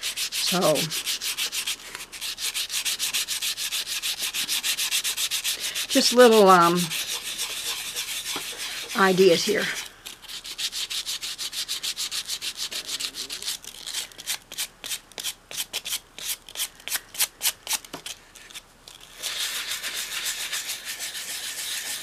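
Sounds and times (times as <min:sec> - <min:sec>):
sandpaper scratching: 0:00.0 - 0:17.8, 0:18.5 - 0:22.0.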